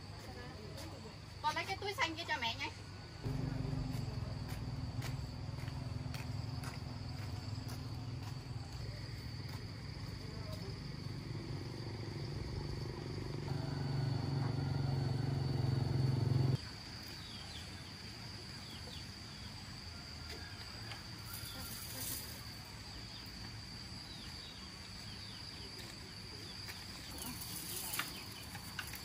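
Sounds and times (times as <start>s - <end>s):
faint insect chirps: 0.2s - 29.0s
high insect drone: 1.5s - 29.0s
engine running: 3.3s - 8.8s, 11.0s - 16.6s.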